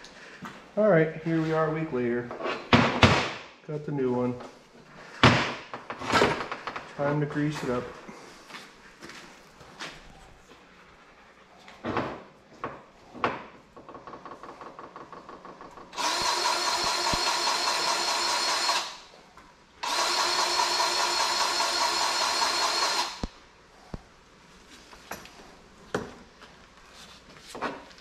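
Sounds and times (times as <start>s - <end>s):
powered grease gun motor running: 15.9s - 19.1s, 19.8s - 23.3s.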